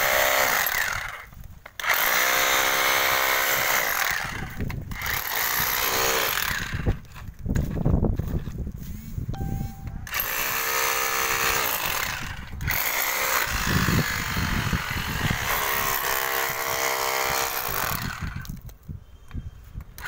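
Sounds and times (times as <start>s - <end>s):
hammer drill into brick: 0.0s - 7.2s, 10.1s - 18.8s.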